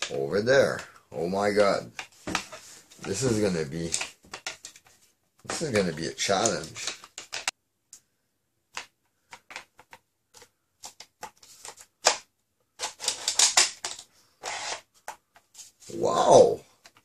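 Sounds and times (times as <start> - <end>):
hard plastic parts clicking: 1.6 - 4.9, 5.5 - 7.5, 8.7 - 15.5.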